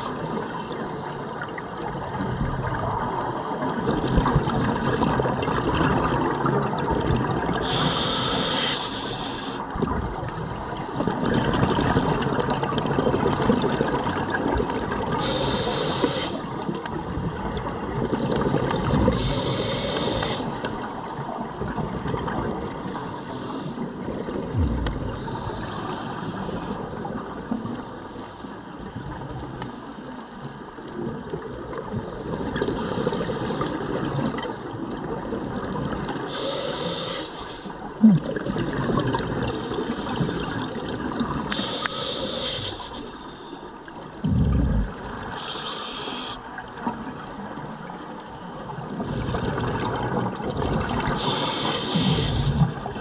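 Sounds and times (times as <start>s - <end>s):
exhaled bubbles gurgling: 0.0s - 27.8s, 30.8s - 43.2s, 43.8s - 47.8s, 48.5s - 53.0s
regulator hissing: 15.2s - 16.4s, 19.2s - 20.5s, 51.2s - 52.6s.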